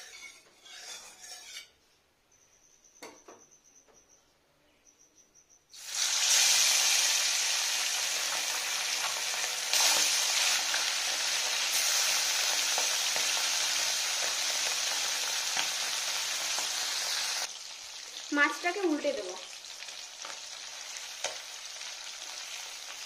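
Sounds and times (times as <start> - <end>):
fish sizzling in hot oil: 5.7 - 23.0.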